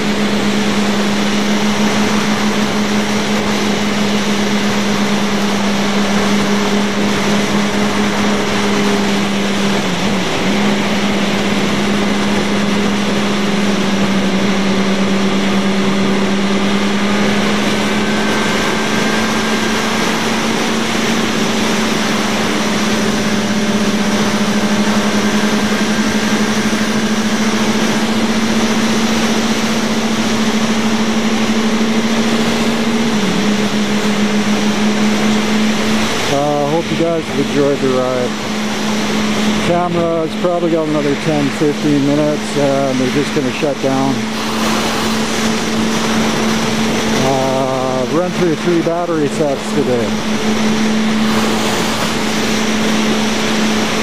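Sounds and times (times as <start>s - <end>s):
motorcycle engine cruising: 0.0s - 54.0s
wind rush on microphone: 0.0s - 54.0s.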